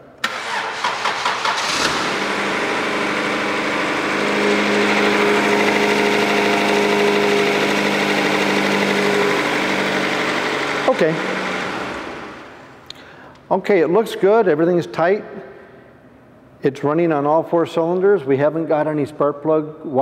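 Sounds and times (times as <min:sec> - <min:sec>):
starter cranking engine: 0:00.2 - 0:12.4
car engine idling: 0:00.4 - 0:12.8.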